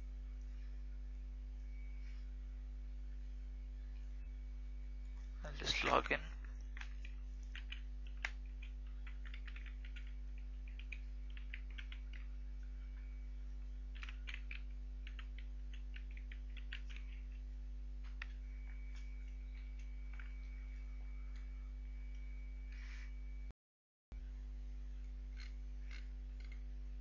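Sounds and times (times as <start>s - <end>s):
low electrical hum: 0.0s - 23.5s, 24.2s - 27.0s
keyboard typing: 6.5s - 22.2s.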